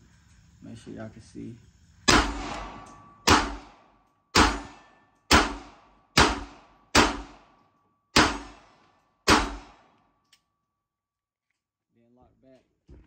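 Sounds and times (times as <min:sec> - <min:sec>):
pistol shots echoing: 0:02.1 - 0:10.0.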